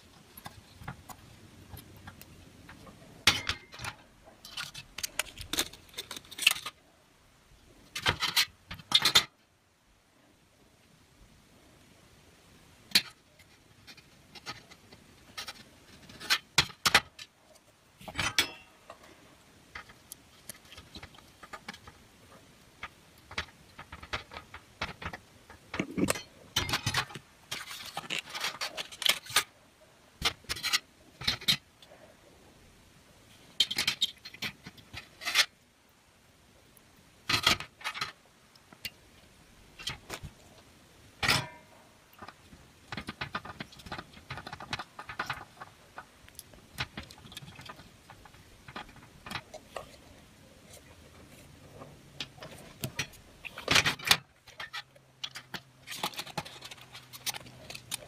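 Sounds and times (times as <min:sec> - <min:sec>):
scraping and rustling: 0:12.9 - 0:29.6, 0:38.8 - 0:58.0.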